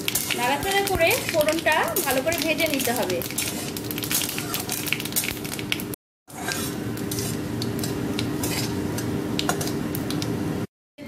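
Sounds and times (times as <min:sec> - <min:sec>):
spices sizzling in hot oil: 0:00.0 - 0:10.7
spatula scraping metal pan: 0:06.3 - 0:08.8.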